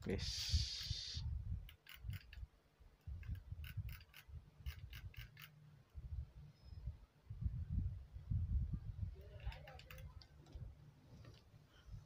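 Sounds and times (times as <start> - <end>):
computer mouse clicking: 9.4 - 10.3.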